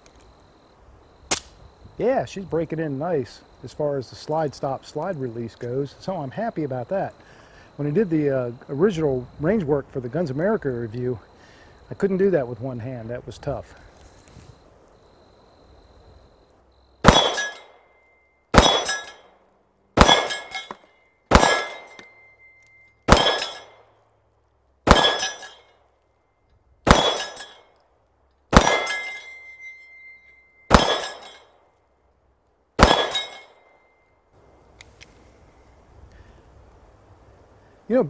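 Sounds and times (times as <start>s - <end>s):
pistol shots: 17.0s - 17.7s, 18.5s - 19.2s, 20.0s - 22.2s, 23.1s - 23.9s, 24.8s - 25.6s, 26.8s - 27.6s, 28.5s - 29.3s, 30.7s - 31.4s, 32.8s - 33.6s
bullets clanging on steel target: 17.0s - 17.8s, 18.6s - 19.3s, 20.0s - 23.9s, 24.9s - 25.8s, 26.9s - 27.7s, 28.5s - 31.6s, 32.8s - 33.8s.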